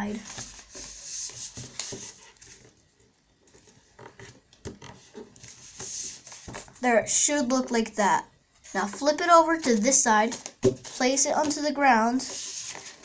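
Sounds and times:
paper rustling: 0:03.5 - 0:06.8, 0:12.2 - 0:13.0.

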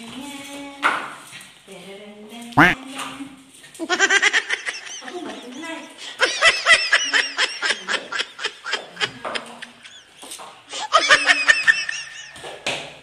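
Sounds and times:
high-pitched laughter: 0:03.8 - 0:12.4.

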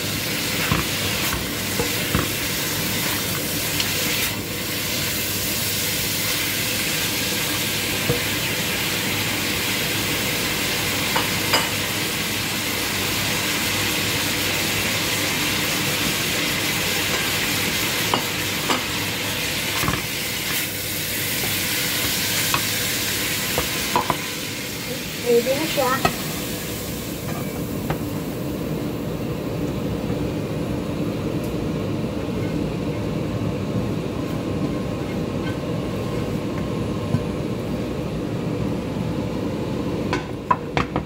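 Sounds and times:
food sizzling in a frying pan: 0:00.0 - 0:29.4.

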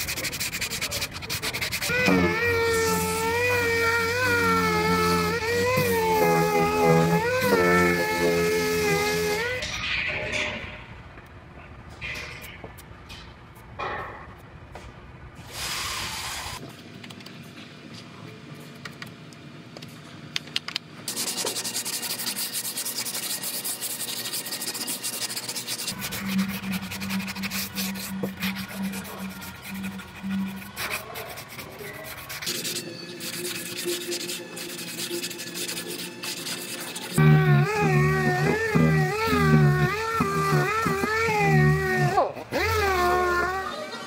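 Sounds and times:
sanding block rubbing filler: 0:00.0 - 0:09.6, 0:21.1 - 0:43.7.

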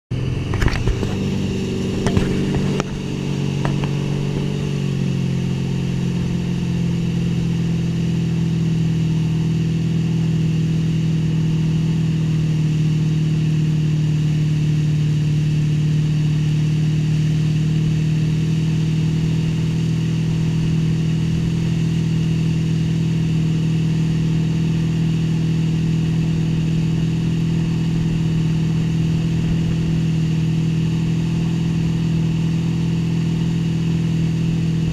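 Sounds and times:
motorboat engine running: 0:00.1 - 0:34.9.

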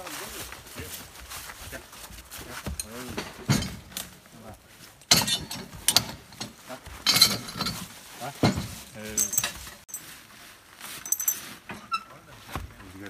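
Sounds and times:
metal chains clinking: 0:02.5 - 0:10.2, 0:10.9 - 0:12.1.

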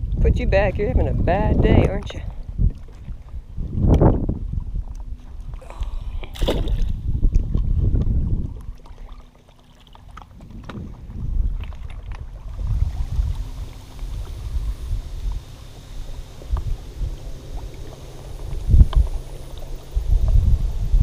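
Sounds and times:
wind gusting on microphone: 0:00.0 - 0:08.8, 0:10.2 - 0:21.0
short sharp knock or splash: 0:06.3 - 0:06.9.

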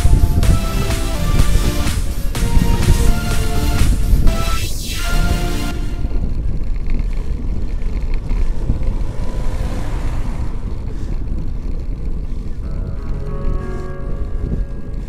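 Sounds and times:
van passing: 0:00.0 - 0:15.0
wind buffeting microphone: 0:00.0 - 0:15.0.

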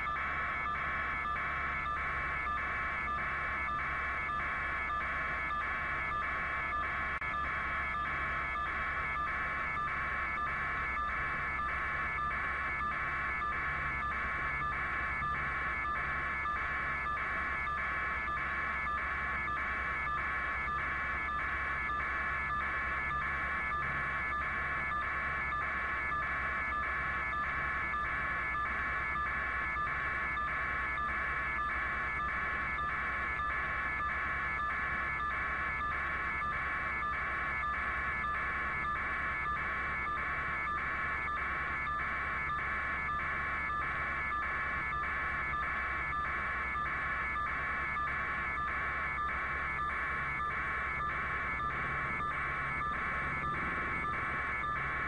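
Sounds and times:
high electronic alarm tone pulsing: 0:00.0 - 0:55.0
steady low hum: 0:26.4 - 0:55.0.

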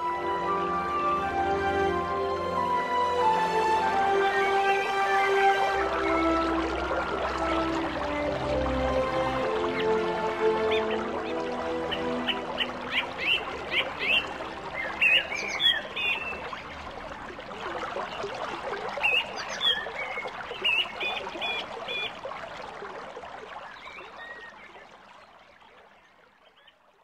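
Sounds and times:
mountain stream rushing: 0:00.0 - 0:25.4
small birds chirping: 0:10.7 - 0:16.8, 0:19.0 - 0:22.1.

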